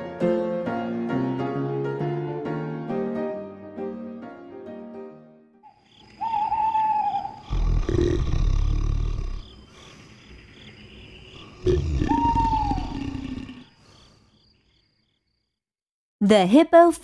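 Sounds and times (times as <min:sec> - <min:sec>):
faint high chirping: 0:05.6 - 0:15.2
high animal call: 0:05.7 - 0:09.4, 0:11.5 - 0:13.7
deep rumbling roar: 0:07.5 - 0:09.6, 0:11.5 - 0:13.7.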